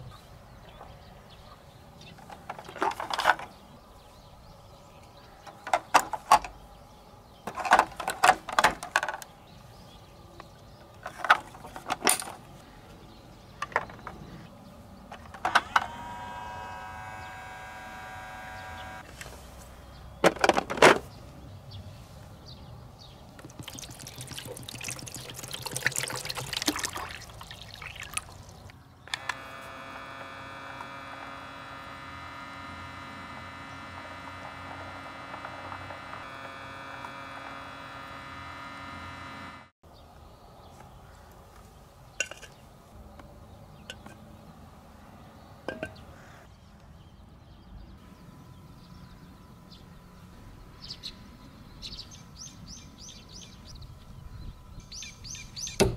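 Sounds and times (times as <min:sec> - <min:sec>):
small electric motor humming: 0:15.3 - 0:19.1, 0:28.2 - 0:39.7
water pouring from plastic bottle: 0:23.4 - 0:28.7.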